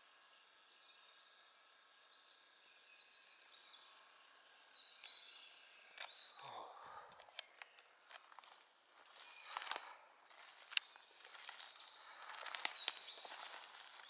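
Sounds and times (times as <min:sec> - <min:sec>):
songbirds singing: 0:00.0 - 0:14.0
footsteps through dry leaves: 0:08.1 - 0:14.0
twigs snapping: 0:09.5 - 0:14.0.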